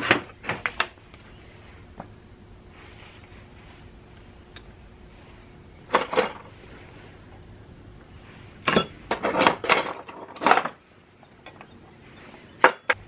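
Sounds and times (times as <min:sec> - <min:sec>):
metal hand tools clinking: 0:08.6 - 0:10.8.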